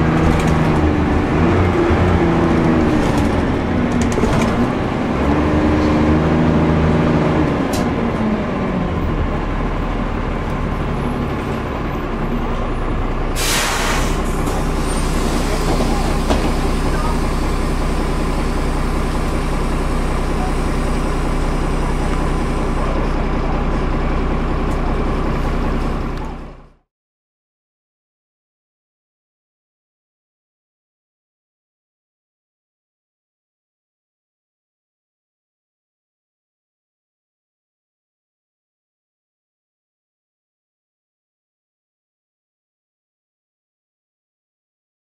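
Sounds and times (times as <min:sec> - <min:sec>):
bus diesel engine idling: 0:05.9 - 0:26.8
air brakes hissing: 0:13.4 - 0:18.8.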